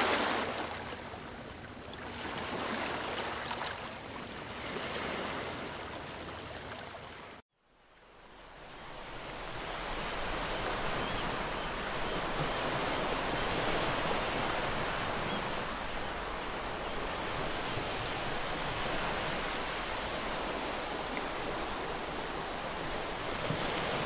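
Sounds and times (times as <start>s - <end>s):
ocean surf breaking: 0.0s - 7.4s.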